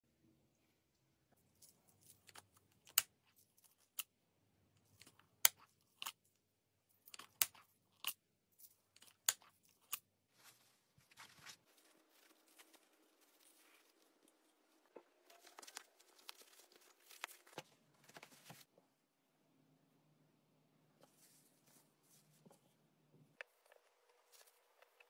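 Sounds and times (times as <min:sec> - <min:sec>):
fabric rustle: 0:10.3 - 0:18.7.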